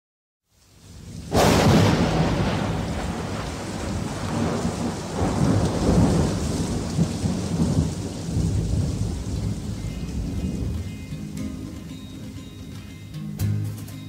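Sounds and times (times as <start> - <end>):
steady rain: 0.4 - 12.9
rolling thunder: 0.9 - 11.1
faint musical tones: 9.3 - 14.0.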